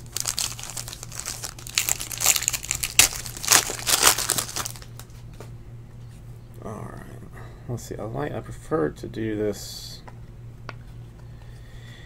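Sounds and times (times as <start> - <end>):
foil wrapper crinkling and tearing: 0.0 - 5.1.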